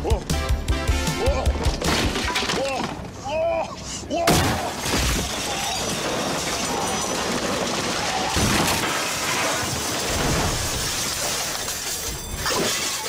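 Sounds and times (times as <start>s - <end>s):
glass shattering: 1.8s - 3.0s, 4.3s - 13.0s.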